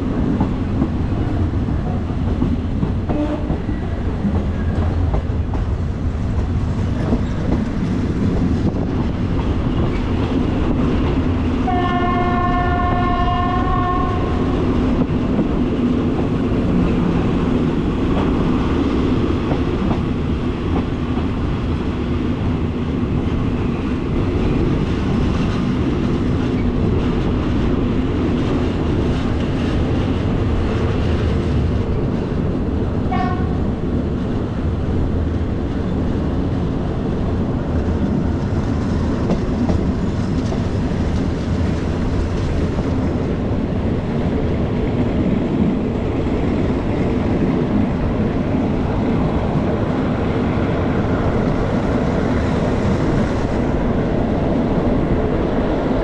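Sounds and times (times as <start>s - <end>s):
train rumbling on rails: 0.0s - 56.0s
train horn: 3.1s - 3.6s, 11.6s - 14.6s, 33.1s - 33.7s.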